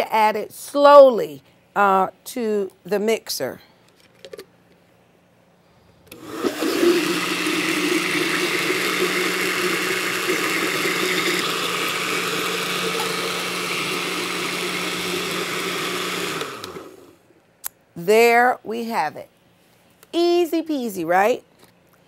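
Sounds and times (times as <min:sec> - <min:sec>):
blender running: 0:06.1 - 0:17.2.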